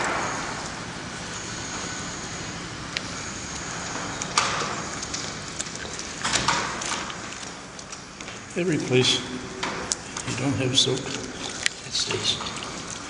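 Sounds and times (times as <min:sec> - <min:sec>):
water sloshing in bucket: 0:03.6 - 0:13.0.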